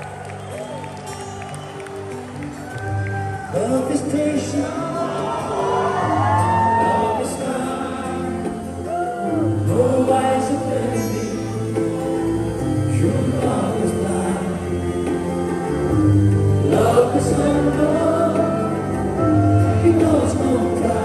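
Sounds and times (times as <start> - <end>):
live band playing: 0.0 - 21.0
man singing into a microphone: 3.5 - 15.4, 16.5 - 21.0.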